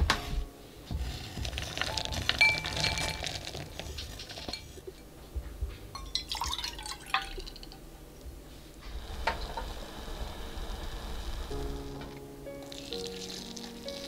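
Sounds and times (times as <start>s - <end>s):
chocolate clattering into glass bowl: 1.5s - 5.0s
milk pouring into a pan: 6.2s - 7.8s, 12.6s - 14.0s.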